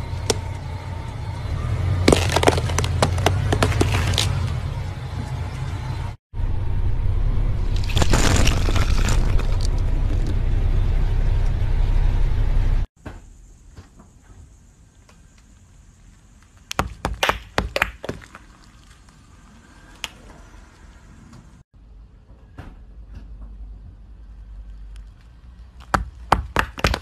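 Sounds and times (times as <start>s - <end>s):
loud low rumble: 0.0s - 12.9s.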